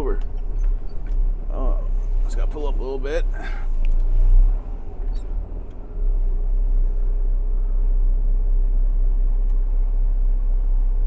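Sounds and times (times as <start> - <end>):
truck diesel engine rumbling: 0.0 - 11.0.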